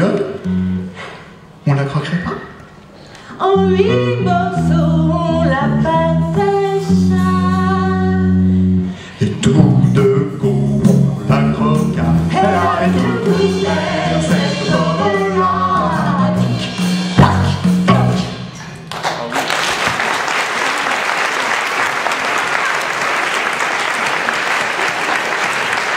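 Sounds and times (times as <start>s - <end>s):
man and woman singing: 3.4s - 8.2s, 9.2s - 18.4s
backing music: 3.4s - 19.3s.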